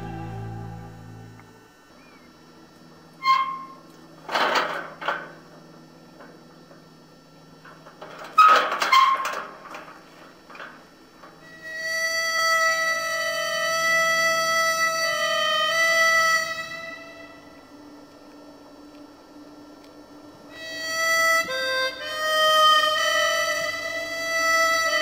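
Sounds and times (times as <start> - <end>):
long held orchestral note: 0.0 - 1.8
accented hits with ringing tones: 0.0 - 2.2.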